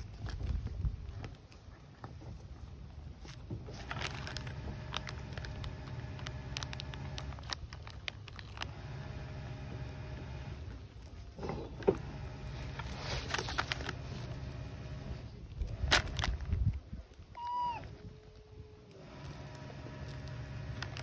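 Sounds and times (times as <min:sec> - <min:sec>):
low mechanical hum: 0:00.0 - 0:21.0
plastic wrapper crinkling: 0:03.2 - 0:09.2, 0:12.4 - 0:14.6, 0:15.5 - 0:21.0.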